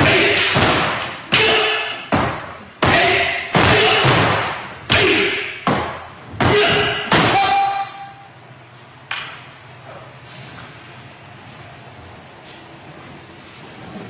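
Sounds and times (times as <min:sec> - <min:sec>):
people shouting: 0:00.0 - 0:02.1, 0:02.8 - 0:05.6, 0:06.4 - 0:08.2.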